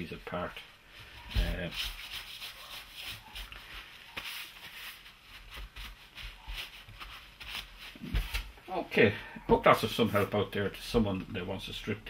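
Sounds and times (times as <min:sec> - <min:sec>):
cloth rag rubbing on housing: 0:00.9 - 0:08.5.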